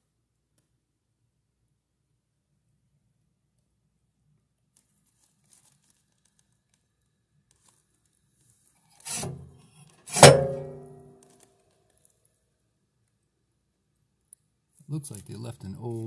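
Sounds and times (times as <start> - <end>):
knocks on metal stove flue: 10.1 - 11.0
metallic ringing: 10.1 - 11.0.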